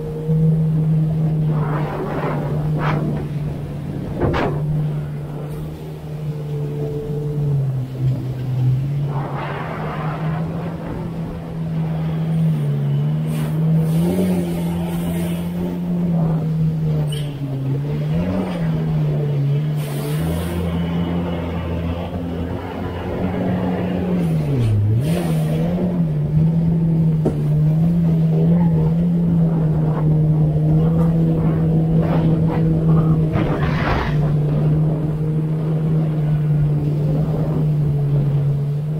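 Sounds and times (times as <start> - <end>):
personal watercraft engine running: 0.0 - 38.9
water splashing against hull: 0.1 - 13.8, 29.0 - 38.9.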